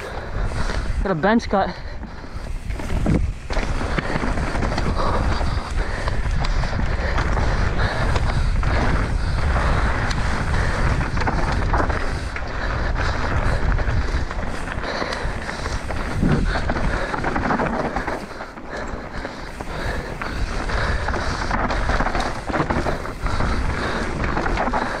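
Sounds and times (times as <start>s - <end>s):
bike tyres rolling over dirt: 0.0s - 25.0s
wind on microphone: 0.0s - 25.0s
bike knocking over bumps: 13.0s - 25.0s.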